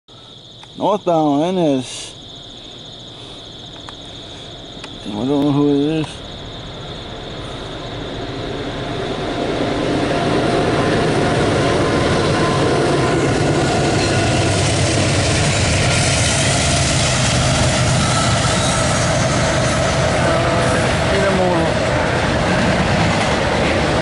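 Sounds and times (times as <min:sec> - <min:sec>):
freight train passing: 0:00.4 - 0:24.0.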